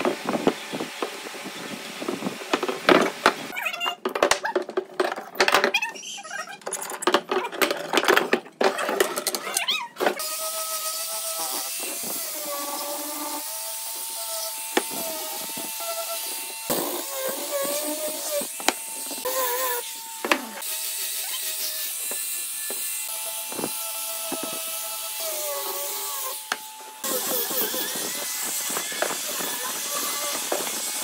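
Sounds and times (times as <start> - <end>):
angle grinder sanding wood: 10.1 - 31.0.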